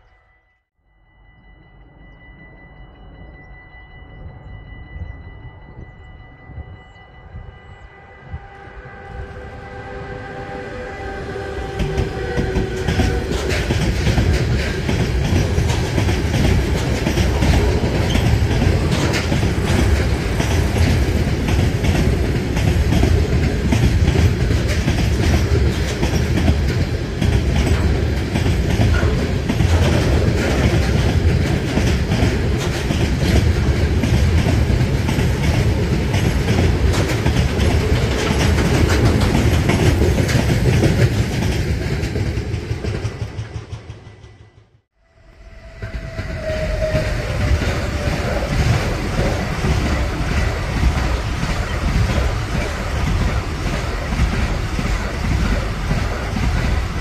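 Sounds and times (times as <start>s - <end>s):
train rumble: 1.1s - 57.0s
train horn tone: 6.0s - 14.5s, 45.0s - 50.8s
wagon wheels clickety-clack: 11.7s - 44.5s, 46.5s - 57.0s.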